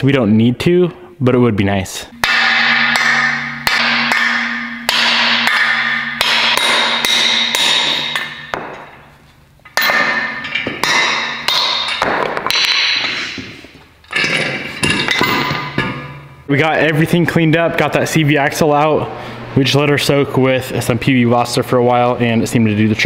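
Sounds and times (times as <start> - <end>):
hammer striking metal axle: 2.1 - 9.0, 9.6 - 16.4.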